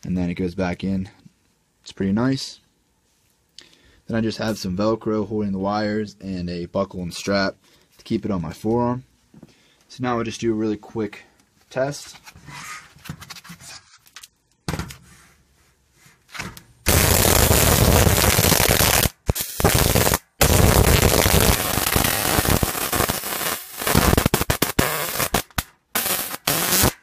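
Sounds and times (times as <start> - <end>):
faint handling sounds: 3.0 - 3.8, 7.6 - 16.7
electric arcing crackle: 16.9 - 27.0.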